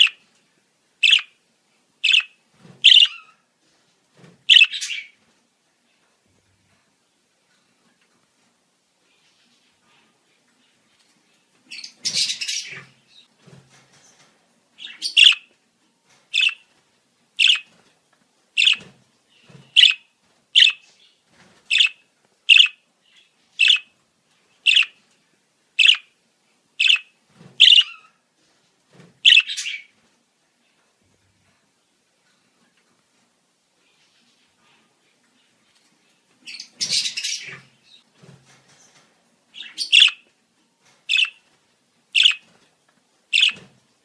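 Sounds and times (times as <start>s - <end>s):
high budgerigar chirps: 0.0s - 0.2s, 1.0s - 1.4s, 2.0s - 3.4s, 4.4s - 5.2s, 11.7s - 13.3s, 14.8s - 15.5s, 16.3s - 16.7s, 17.4s - 17.7s, 18.6s - 23.9s, 24.6s - 25.0s, 25.8s - 26.1s, 26.8s - 28.2s, 29.2s - 30.0s, 36.4s - 38.0s, 39.5s - 40.3s, 41.0s - 41.4s, 42.1s - 42.5s, 43.3s - 43.7s.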